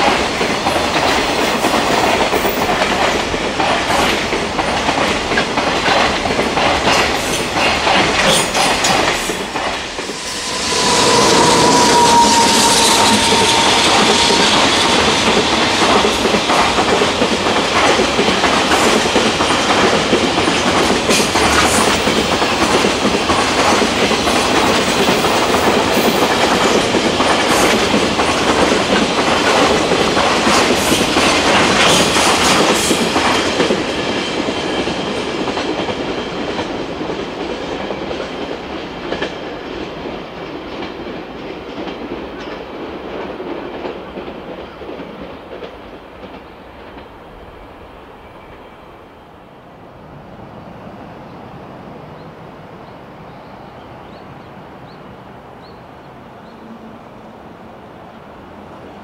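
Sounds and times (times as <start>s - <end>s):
train wheels clicking over rail joints: 0.0s - 11.2s, 13.2s - 47.2s.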